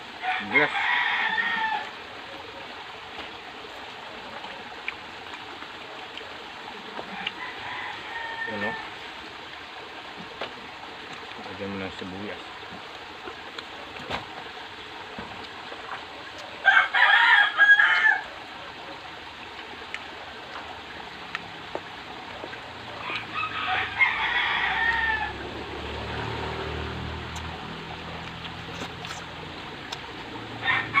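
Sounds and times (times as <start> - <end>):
rooster crowing: 0.2 - 2.0, 7.1 - 9.0, 16.6 - 18.3, 22.9 - 26.3, 30.6 - 31.0.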